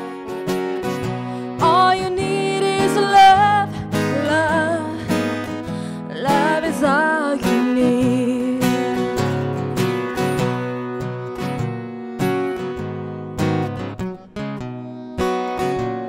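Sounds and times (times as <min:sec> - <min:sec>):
strummed acoustic guitar: 0:00.0 - 0:16.0
person singing: 0:01.1 - 0:09.5.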